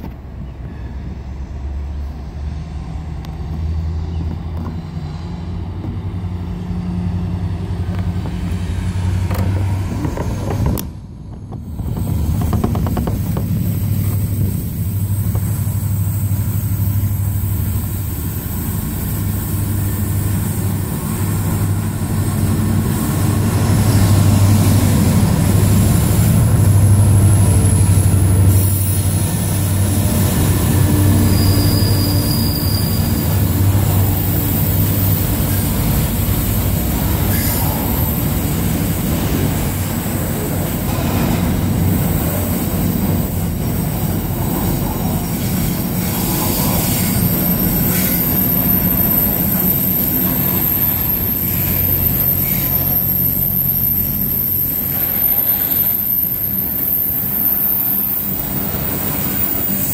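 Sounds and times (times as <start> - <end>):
locomotive engine drone: 0.0 - 59.9
high-pitched wheel squeal: 30.9 - 35.7, 46.6 - 59.9.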